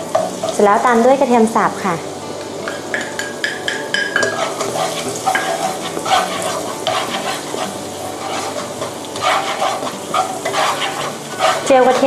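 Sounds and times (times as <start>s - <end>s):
garlic sizzling in butter: 0.0s - 12.0s
spatula scraping pan: 2.7s - 12.0s.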